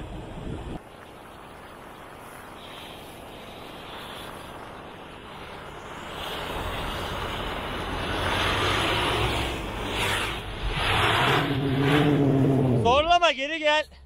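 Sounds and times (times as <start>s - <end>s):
tyres churning through snow: 0.2s - 13.2s
truck engine revving: 5.5s - 12.9s.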